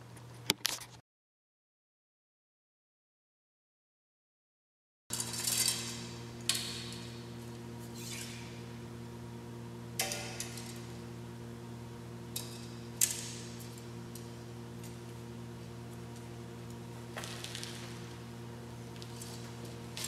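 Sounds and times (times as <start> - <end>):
arrows clicking and rattling: 5.1 - 7.1
steady low hum: 5.1 - 20.0.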